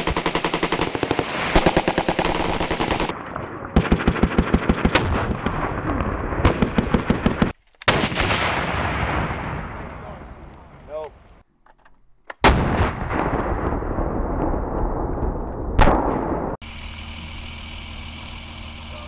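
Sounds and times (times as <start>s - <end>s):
machine gun bursts: 0.0s - 3.1s
heavy blast with rolling echo: 0.0s - 10.8s, 12.4s - 16.8s.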